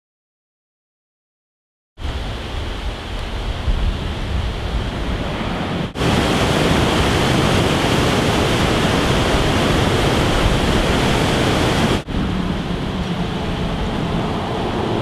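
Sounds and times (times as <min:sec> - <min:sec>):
quieter steady rushing: 0:03.6 - 0:15.0
water rushing down spillway: 0:05.9 - 0:15.0.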